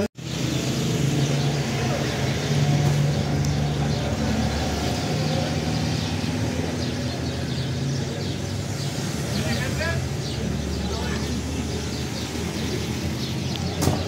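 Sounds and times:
street traffic: 0.0 - 14.0
vehicle engine humming: 0.0 - 14.0.

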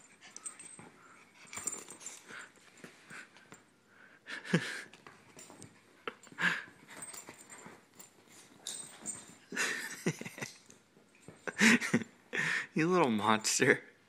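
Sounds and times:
small dog's breathy play noises: 0.0 - 3.6, 4.8 - 9.8.

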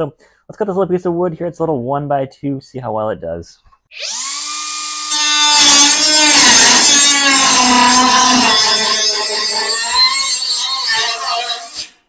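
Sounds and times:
blade rasping through wood: 4.0 - 12.0
cut-off tool motor whining: 4.0 - 12.0.

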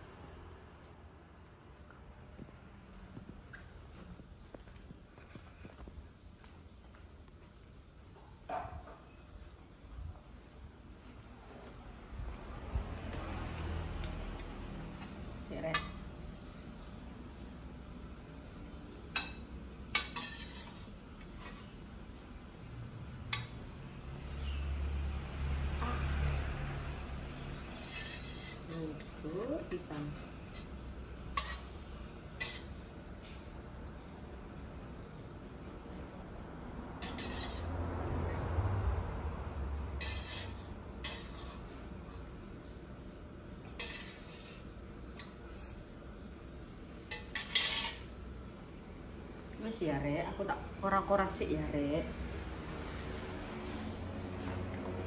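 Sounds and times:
metal spoon scraping saucepan: 19.2 - 21.8, 27.4 - 29.8, 31.4 - 31.8, 32.4 - 32.8, 37.0 - 37.8, 40.0 - 42.2, 43.7 - 45.4, 47.0 - 48.2.

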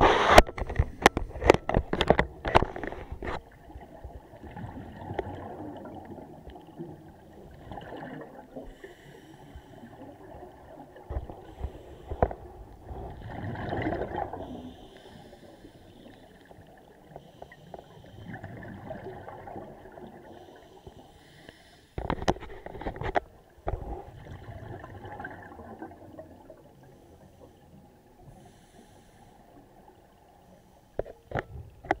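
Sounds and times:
underwater bubbles rumbling: 0.0 - 8.9, 9.6 - 15.4, 17.8 - 20.4, 22.4 - 27.0
breathing gas hissing bursts: 8.8 - 10.0, 14.4 - 16.3, 20.4 - 22.0, 28.3 - 29.5.

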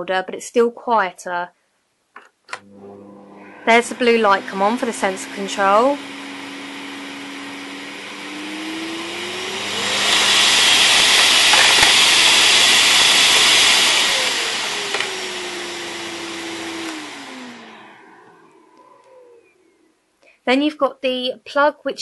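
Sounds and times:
vacuum cleaner running: 2.5 - 19.6.

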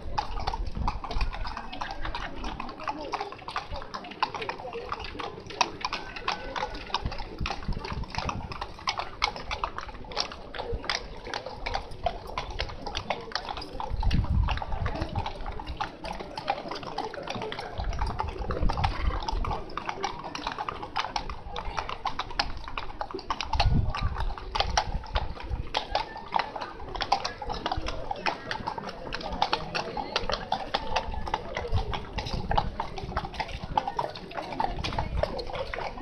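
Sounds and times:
horse hooves on wet road: 0.0 - 36.0.

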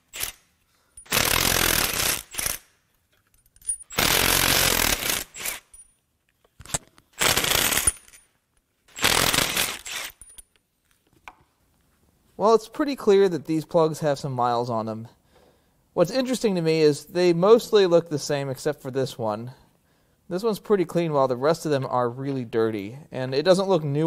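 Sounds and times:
power tool spinning: 0.0 - 0.4, 1.0 - 2.7, 3.9 - 5.8, 7.2 - 8.1, 8.9 - 10.4.

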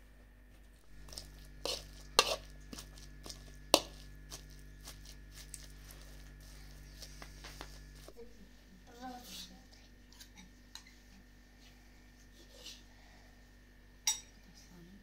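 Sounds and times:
soft mashing of food: 0.8 - 8.4.

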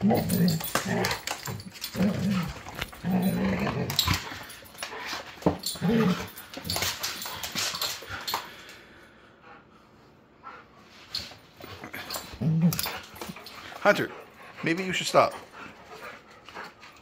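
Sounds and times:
dog growling: 0.0 - 4.6, 5.7 - 6.8, 11.7 - 13.4
dogs scuffling and clicking: 0.0 - 8.8, 10.9 - 17.0.

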